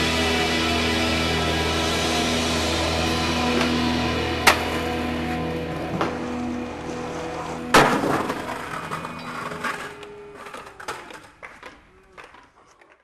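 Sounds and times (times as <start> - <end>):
skateboard wheels rolling: 4.4 - 13.0
skateboard landing on concrete: 7.7 - 9.8.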